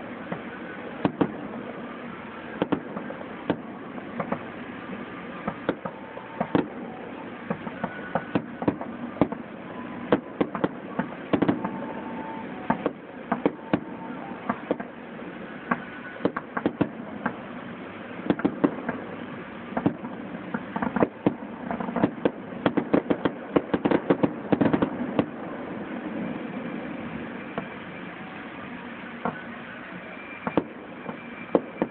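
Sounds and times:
firework shells bursting: 0:02.5 - 0:04.7, 0:05.4 - 0:15.0, 0:15.7 - 0:17.5, 0:18.2 - 0:25.5, 0:30.4 - 0:31.9.

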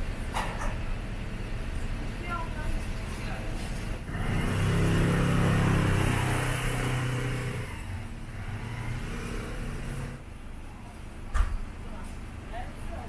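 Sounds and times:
low traffic hum: 0:00.0 - 0:13.0
vehicle passing by: 0:04.0 - 0:10.2.

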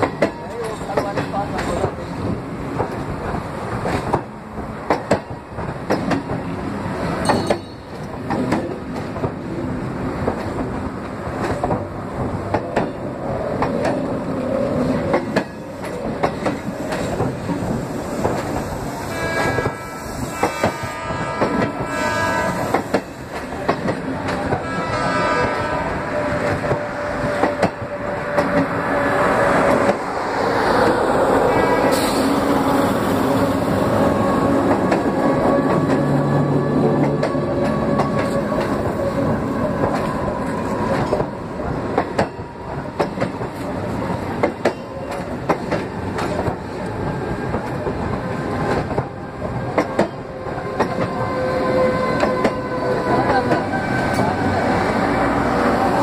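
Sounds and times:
train wheels clattering over rail joints: 0:00.0 - 0:09.5, 0:10.2 - 0:21.9, 0:22.6 - 0:24.7, 0:36.9 - 0:51.4
pitched train whine: 0:14.1 - 0:56.0.

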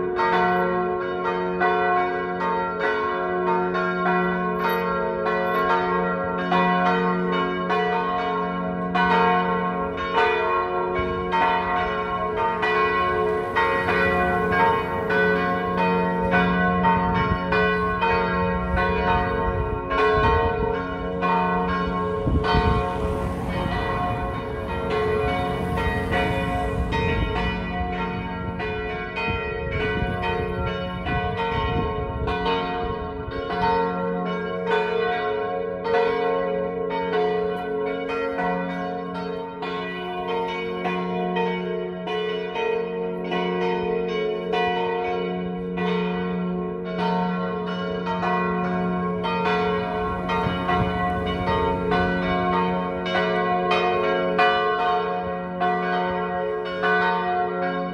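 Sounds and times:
church bells pealing: 0:00.0 - 0:57.9.

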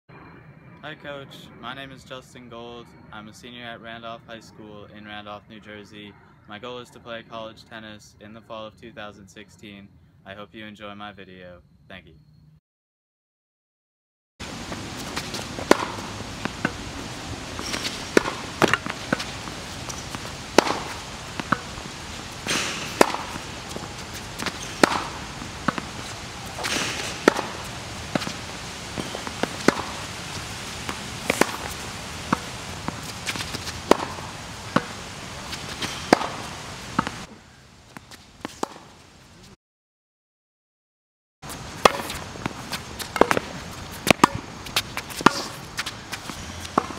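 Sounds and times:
racket hitting tennis ball: 0:14.4 - 0:37.3, 0:37.9 - 0:39.0, 0:41.5 - 0:46.9
balls bouncing on hard court: 0:14.5 - 0:37.3, 0:41.5 - 0:46.9
soft shoe scuffs: 0:41.5 - 0:46.9.

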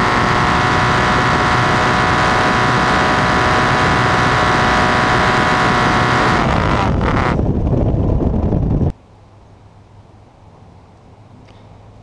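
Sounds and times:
loose mount vibrating buzz: 0:00.0 - 0:08.9.

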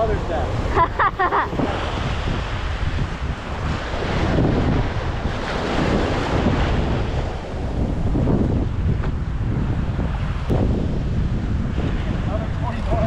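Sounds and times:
wash of open water: 0:00.0 - 0:13.0
wind buffeting microphone: 0:00.0 - 0:13.0.

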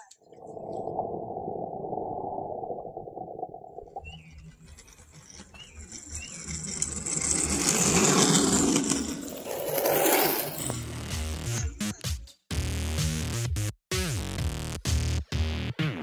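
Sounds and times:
scooter wheels rolling on asphalt: 0:04.5 - 0:11.0.

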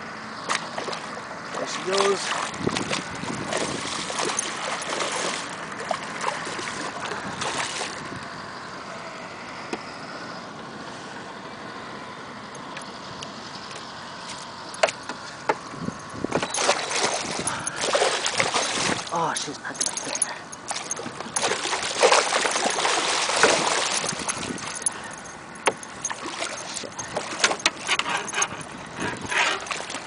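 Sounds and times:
quiet water sounds: 0:00.0 - 0:30.0
fish thrashing and splashing: 0:00.4 - 0:08.2, 0:14.8 - 0:30.0.

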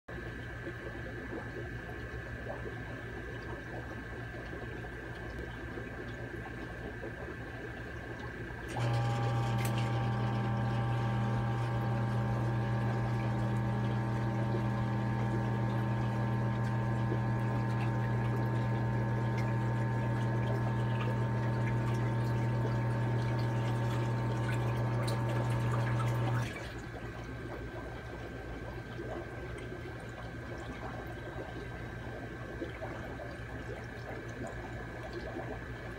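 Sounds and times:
steady electrical hum: 0:00.1 - 0:35.9
loud machine hum with tones: 0:07.8 - 0:28.4.

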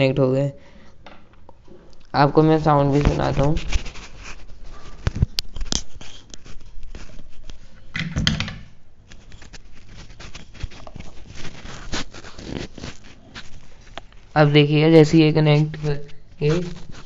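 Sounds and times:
fingers rubbing on housings: 0:09.1 - 0:14.3.

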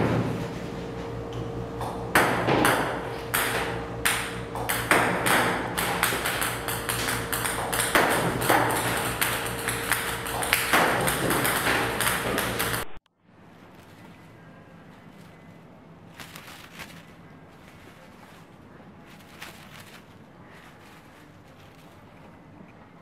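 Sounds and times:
faint steady hum: 0:00.0 - 0:23.0
ping-pong balls bouncing: 0:02.1 - 0:13.0.

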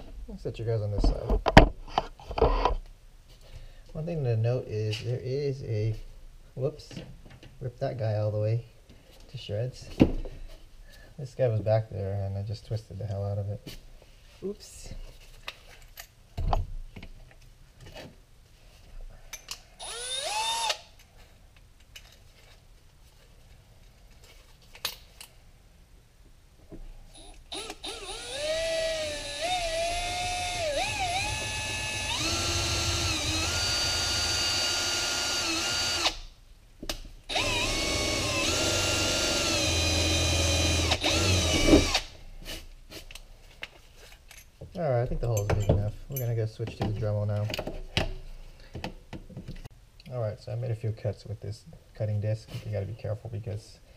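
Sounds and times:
cordless drill boring through plastic: 0:19.8 - 0:20.8, 0:27.2 - 0:36.2, 0:37.3 - 0:42.1.

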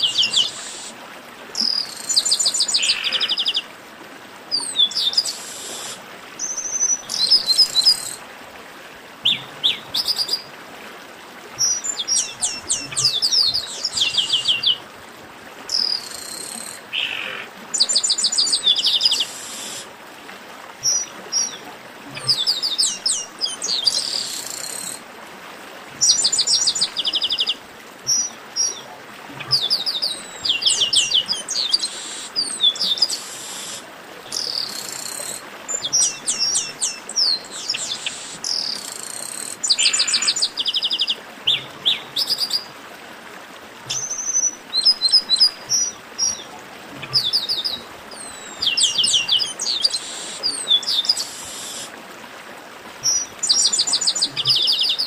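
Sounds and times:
faint steady hiss: 0:00.0 - 0:55.0
blackbirds singing: 0:11.6 - 0:14.8, 0:15.7 - 0:19.8, 0:29.4 - 0:42.6, 0:43.9 - 0:51.9.

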